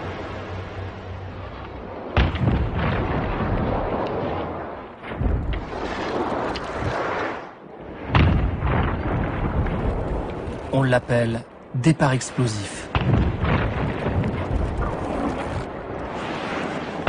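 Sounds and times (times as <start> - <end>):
deep booming impacts: 2.2 - 3.9, 8.1 - 10.2, 12.9 - 14.7.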